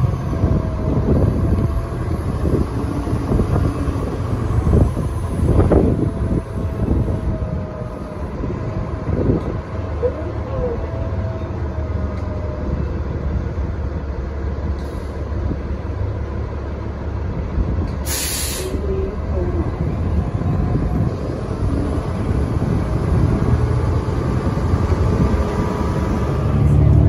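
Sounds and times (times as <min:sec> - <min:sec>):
bus drivetrain and road rumble: 0:00.0 - 0:27.0
short sharp hiss: 0:18.0 - 0:18.8.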